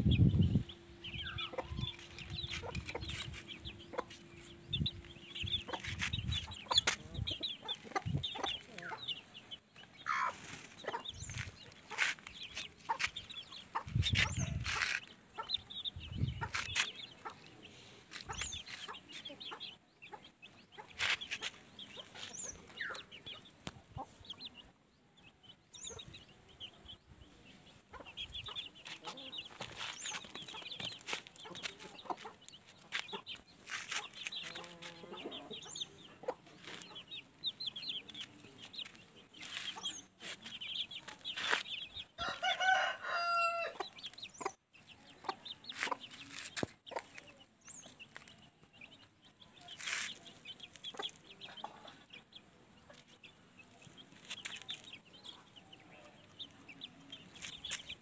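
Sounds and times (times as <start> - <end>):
chicks peeping and clucking: 0.0 - 58.0
rooster crowing: 42.2 - 43.8.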